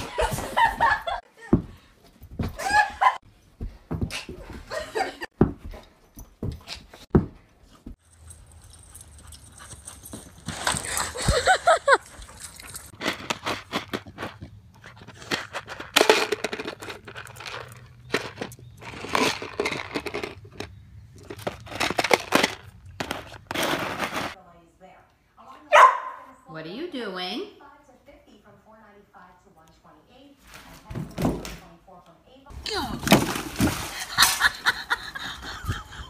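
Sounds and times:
plastic tub scraping on asphalt: 12.8 - 24.4.

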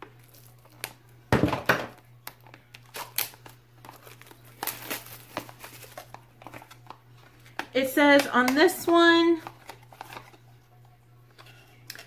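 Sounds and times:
packaging crinkling and tearing: 0.1 - 1.1, 2.2 - 7.7, 9.4 - 10.5.

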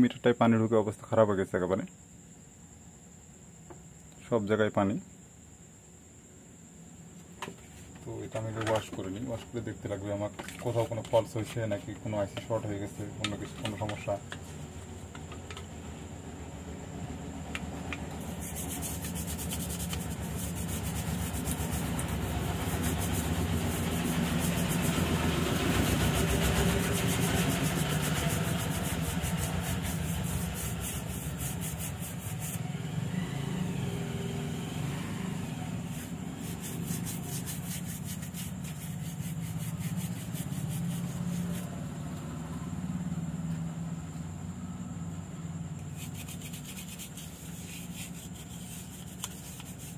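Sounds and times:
brush scrubbing circuit board: 18.1 - 32.6, 35.8 - 41.7, 45.9 - 49.9.

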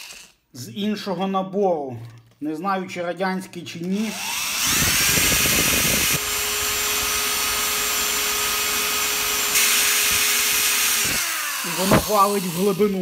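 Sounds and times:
electric drill boring metal: 0.0 - 0.4, 4.0 - 13.0.

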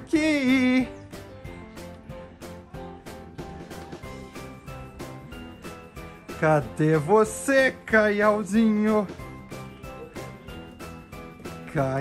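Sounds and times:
background music with steady beat: 0.0 - 12.0
man calling out: 6.4 - 9.1.

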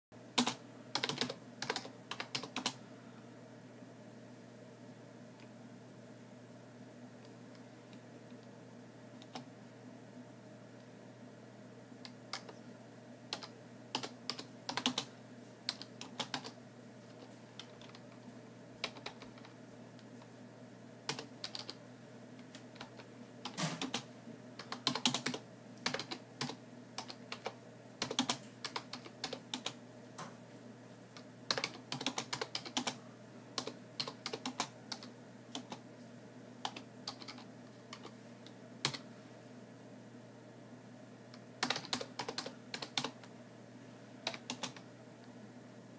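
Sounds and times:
steady low hum: 0.2 - 45.9
typing on computer keyboard: 0.4 - 2.8, 13.3 - 15.1, 15.7 - 18.0, 18.8 - 19.5, 21.1 - 21.8, 22.5 - 24.0, 24.6 - 29.8, 31.5 - 33.0, 33.6 - 35.8, 36.6 - 38.1, 41.6 - 43.2, 44.3 - 44.8.

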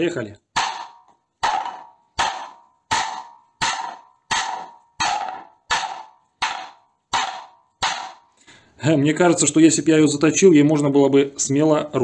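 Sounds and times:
metal plate striking wooden board: 0.5 - 8.4.

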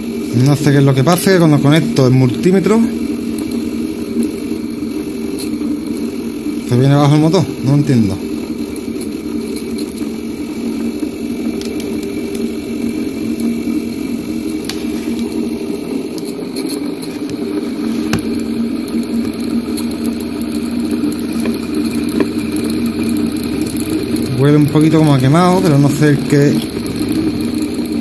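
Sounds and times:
fan motor whirring: 0.0 - 28.0.

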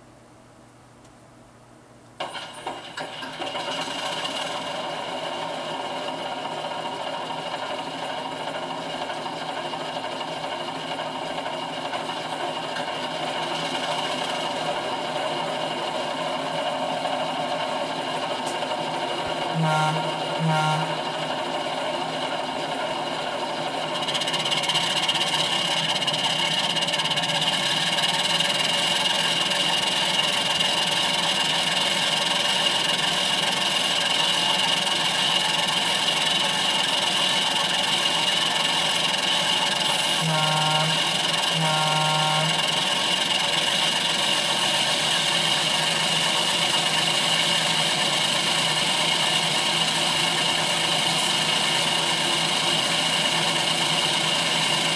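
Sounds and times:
diesel engine idling through speaker: 17.7 - 21.6, 39.9 - 54.9
short horn toots: 19.5 - 21.2, 40.2 - 42.8.

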